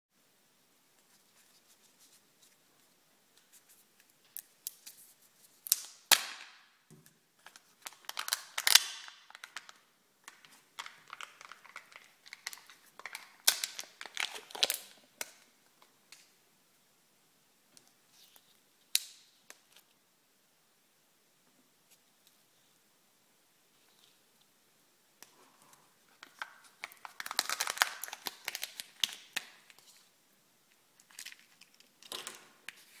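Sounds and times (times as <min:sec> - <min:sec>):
foil wrapper crinkling and tearing: 0:07.4 - 0:15.4, 0:26.2 - 0:29.9, 0:31.0 - 0:32.0.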